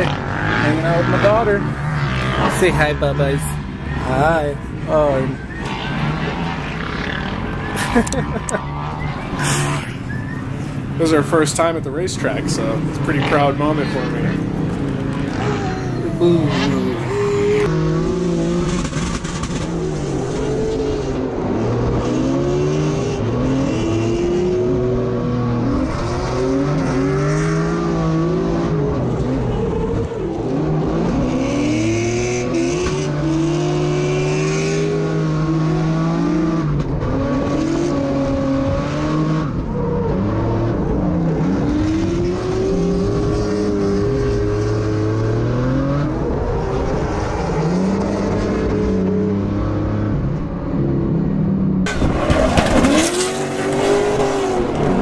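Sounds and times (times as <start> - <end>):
car engine revving: 0.0 - 55.0.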